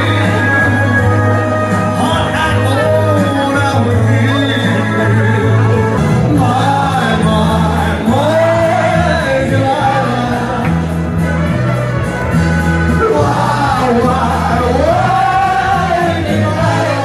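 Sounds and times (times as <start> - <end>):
person singing over backing track: 0.0 - 17.0.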